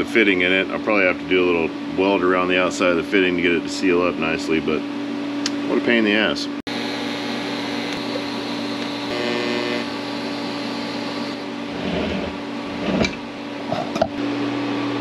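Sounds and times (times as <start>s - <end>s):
welding arc hissing: 6.7s - 11.5s.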